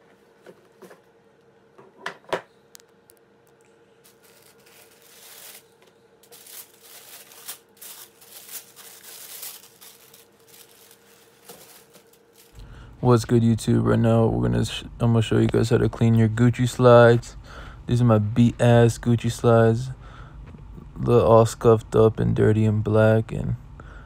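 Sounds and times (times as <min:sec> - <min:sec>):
tissue paper rustling: 0:04.0 - 0:12.6.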